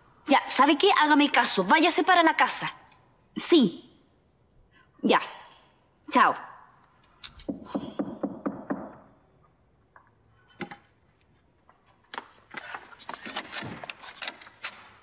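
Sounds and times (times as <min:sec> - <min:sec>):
knocking at a door: 0:07.5 - 0:09.0.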